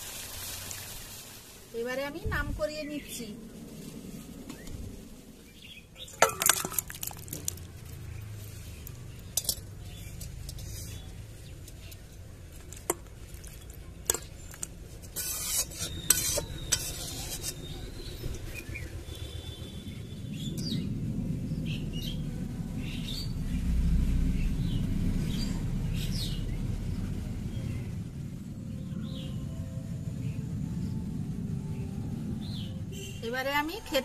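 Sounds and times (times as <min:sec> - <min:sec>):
metal spatula scraping a wok: 0:14.9 - 0:17.8.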